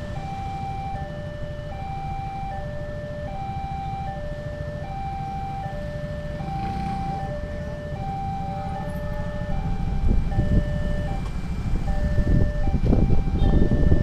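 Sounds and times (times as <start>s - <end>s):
idling road traffic rumble: 0.0s - 14.0s.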